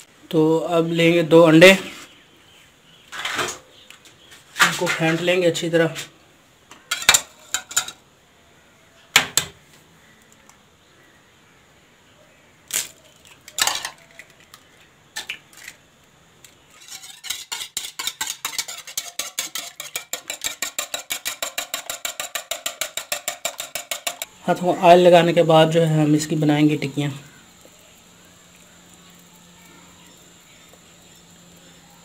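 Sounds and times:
wire whisk beating in bowl: 0:16.8 - 0:24.3.

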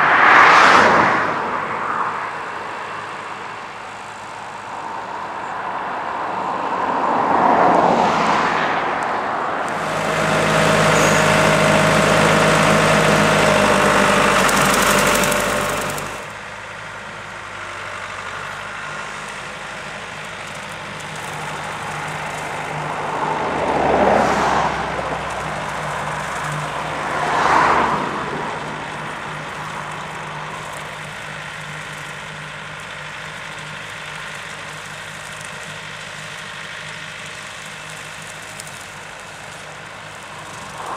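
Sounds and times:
tractor diesel engine running: 0:09.6 - 0:40.9.

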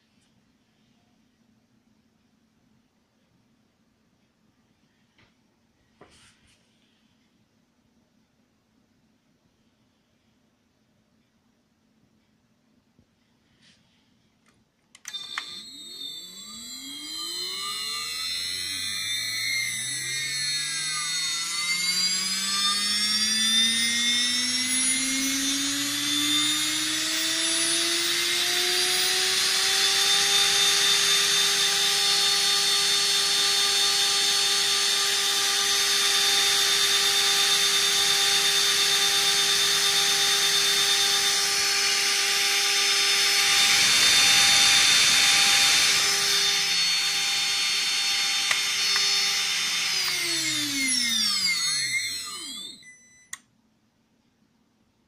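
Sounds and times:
spindle motor whining: 0:15.0 - 0:53.4.

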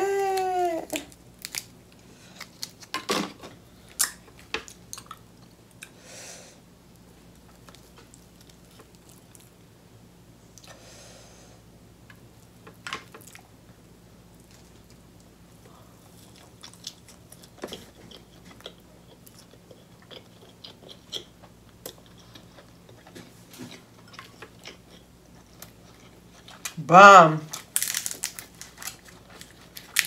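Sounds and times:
steady low hum: 0:00.1 - 0:30.0
soft chewing: 0:03.9 - 0:06.0, 0:06.9 - 0:09.7, 0:14.3 - 0:26.8, 0:27.5 - 0:30.0.

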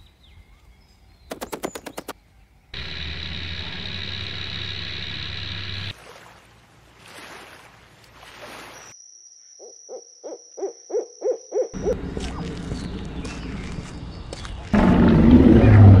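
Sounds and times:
steady noise: 0:02.8 - 0:05.9.

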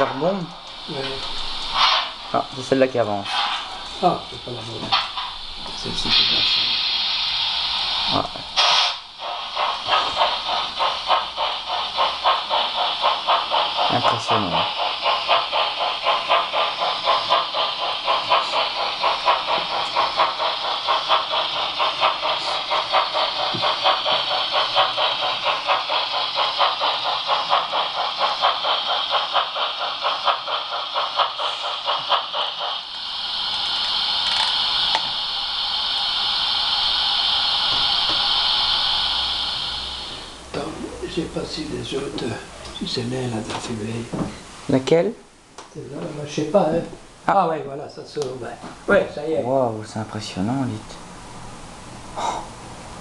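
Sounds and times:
steam locomotive chuffing: 0:00.0 - 0:44.9
steam hiss: 0:00.0 - 0:45.0, 0:46.1 - 0:53.0.

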